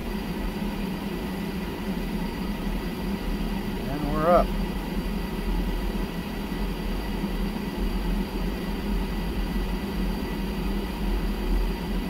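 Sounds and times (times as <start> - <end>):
faint high whine: 0.0 - 12.0
gas heater blower humming: 0.0 - 12.0.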